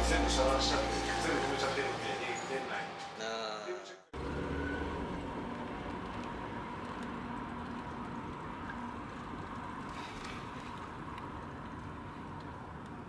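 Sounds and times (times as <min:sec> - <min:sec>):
road and engine noise inside car: 0:04.2 - 0:13.0.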